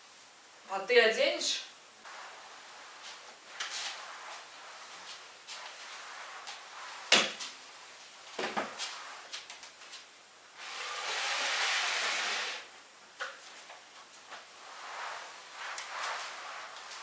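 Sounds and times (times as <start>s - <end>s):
mop pad swishing across floor: 2.0s - 10.1s, 13.2s - 17.0s
mop knocking: 2.2s - 7.7s, 8.4s - 10.0s.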